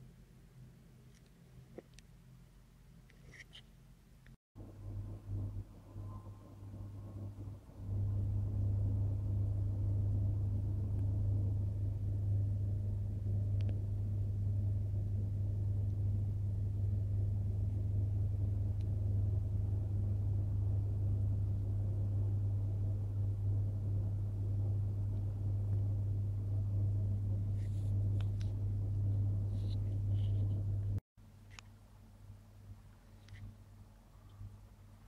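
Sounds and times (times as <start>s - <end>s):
machine humming: 4.6s - 31.0s.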